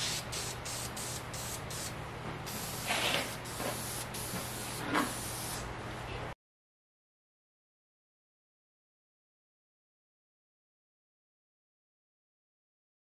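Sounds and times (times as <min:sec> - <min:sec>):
aerosol spray can hissing: 0:00.0 - 0:01.9, 0:02.5 - 0:05.6.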